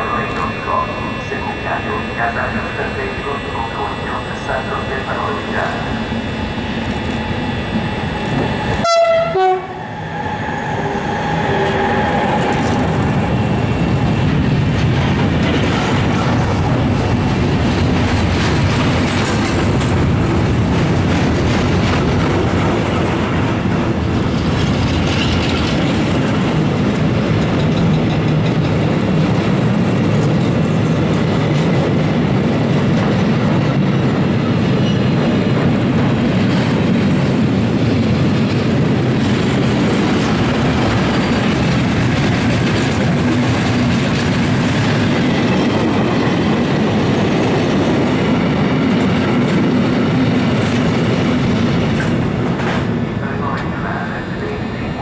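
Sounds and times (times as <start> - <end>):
freight train wheels rumbling: 0.0 - 55.0
clickety-clack over rail joints: 14.2 - 53.8.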